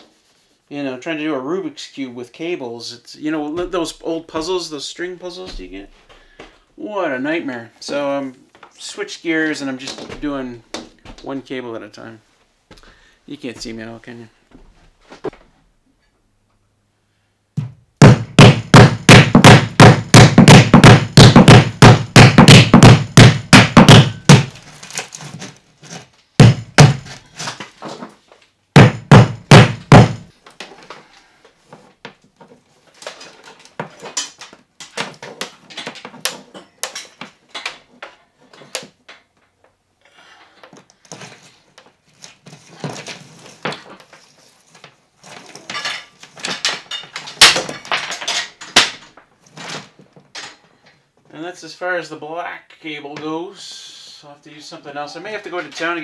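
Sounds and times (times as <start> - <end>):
hammer striking wood: 17.6 - 24.6, 26.4 - 27.2, 28.8 - 30.3
cable rustling: 24.5 - 26.2.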